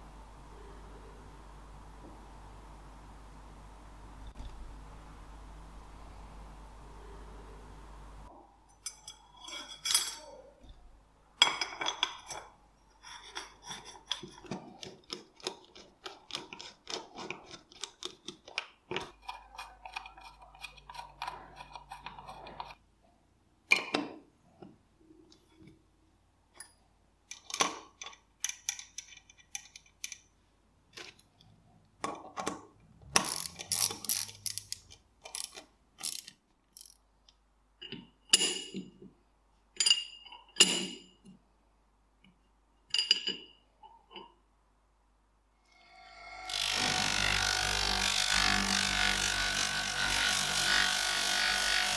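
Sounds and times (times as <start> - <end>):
steel parts clinking: 8.7 - 10.4, 33.2 - 37.0.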